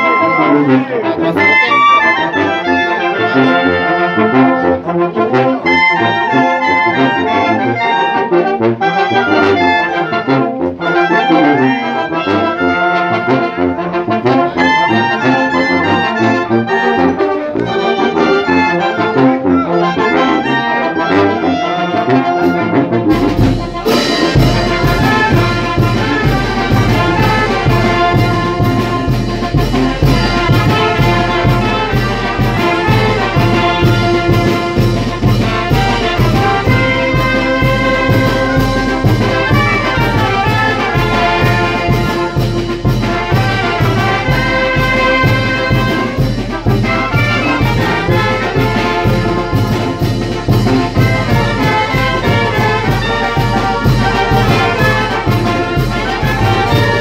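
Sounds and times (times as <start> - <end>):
brass band playing: 0.0 - 57.0
drums and cymbals beat: 23.1 - 57.0.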